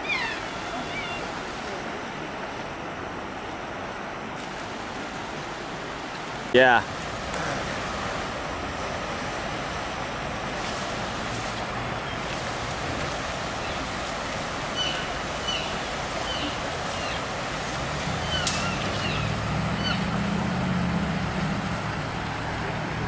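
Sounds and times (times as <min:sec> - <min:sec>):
rushing mountain river: 0:00.0 - 0:23.0
passing vehicle hum: 0:06.9 - 0:23.0.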